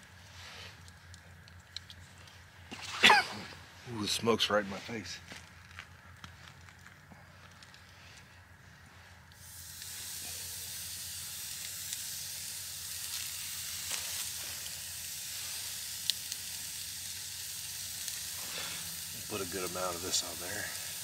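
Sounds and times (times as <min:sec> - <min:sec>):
burger patty sizzling: 0:08.9 - 0:21.0.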